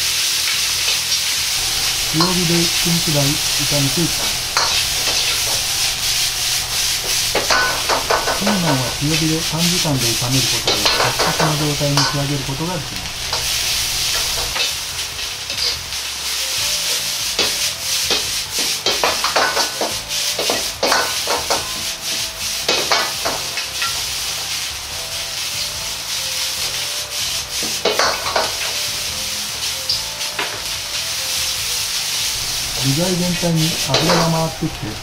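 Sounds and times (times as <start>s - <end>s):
food sizzling in wok: 0.0s - 35.0s
metal ladle scraping wok: 1.6s - 9.0s, 9.7s - 12.2s.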